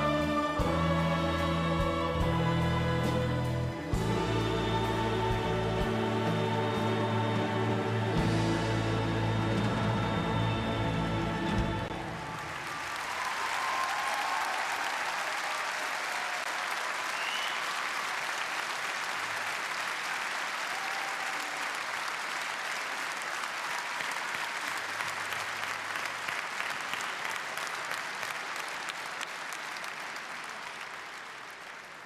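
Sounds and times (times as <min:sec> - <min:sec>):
large audience applauding: 0:10.3 - 0:32.0.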